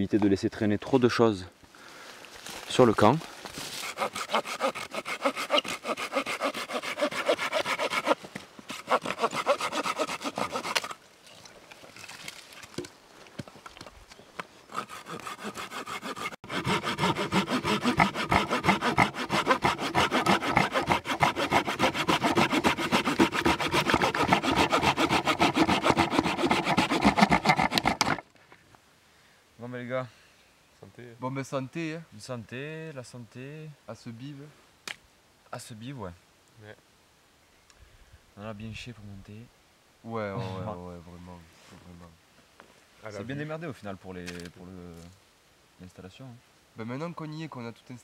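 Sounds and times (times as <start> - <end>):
hand saw cutting wood: 3.8 - 11.0, 14.7 - 28.2.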